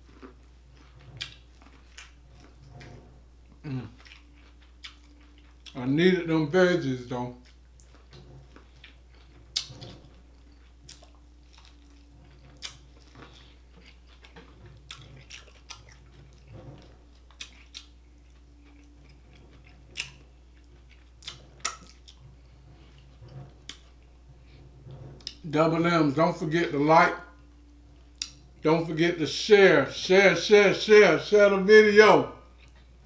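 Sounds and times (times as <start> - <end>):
person chewing with wet smacks: 0.0 - 2.6, 3.5 - 5.8, 7.4 - 22.2, 28.0 - 28.4
low steady hum: 0.0 - 33.0.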